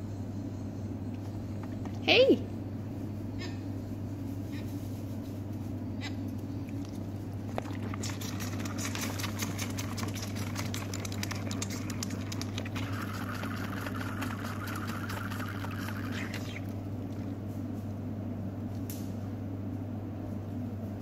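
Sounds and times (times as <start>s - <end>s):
steady low hum: 0.0s - 21.0s
calf sucking from bottle teat: 6.7s - 17.4s.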